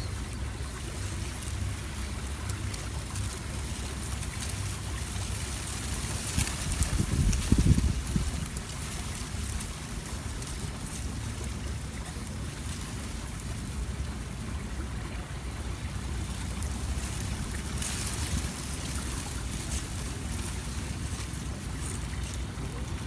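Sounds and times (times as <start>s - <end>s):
wind buffeting microphone: 2.8s - 14.8s.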